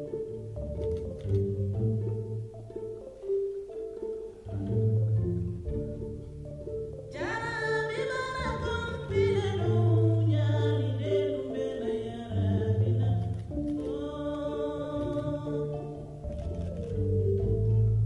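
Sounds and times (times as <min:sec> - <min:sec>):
high singing voice: 0:07.2 - 0:16.2.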